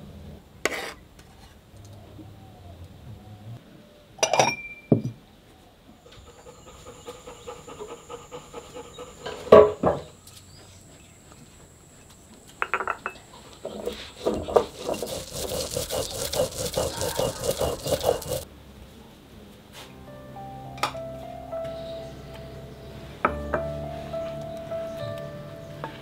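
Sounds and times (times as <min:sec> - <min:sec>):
stone roller grinding seeds: 0:13.5 - 0:18.4.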